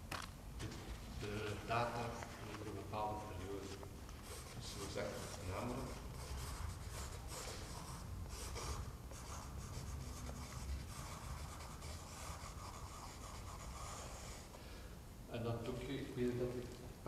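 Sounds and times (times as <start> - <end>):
pen scratching on canvas: 2.5 - 14.5.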